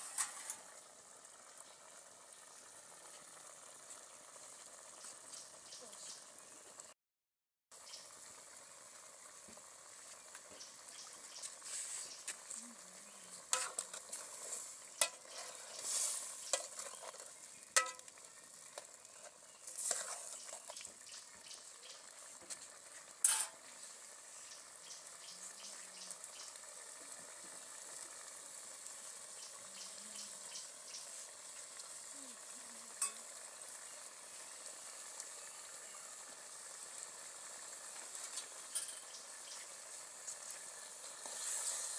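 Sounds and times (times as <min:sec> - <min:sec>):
soup simmering in a pot: 0:00.0 - 0:07.0, 0:07.7 - 0:41.9
wood fire crackling and popping: 0:09.4 - 0:29.2, 0:36.6 - 0:41.8.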